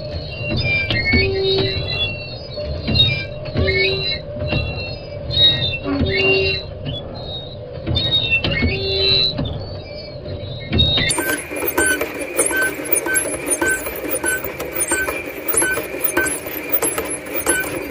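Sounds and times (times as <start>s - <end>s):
machine whine: 10.8s - 17.9s
gliding tones: 11.1s - 17.9s
short regular ticking: 11.1s - 17.9s.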